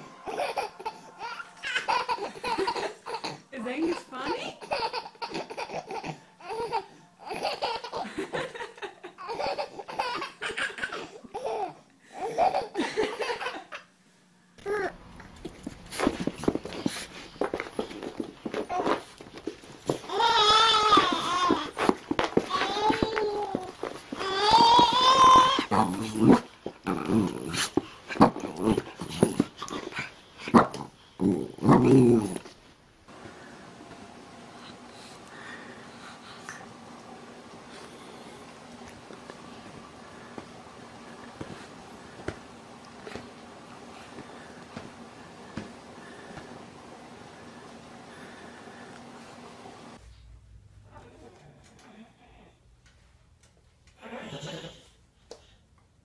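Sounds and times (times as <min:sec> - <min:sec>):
baby laughing: 0:00.2 - 0:13.9.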